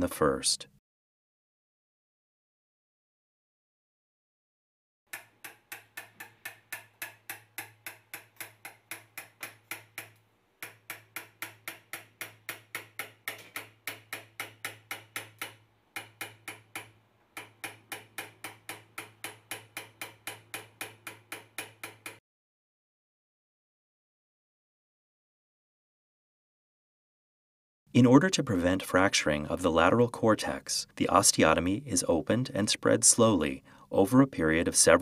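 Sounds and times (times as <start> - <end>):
hammer tapping metal chisel: 5.1 - 22.2.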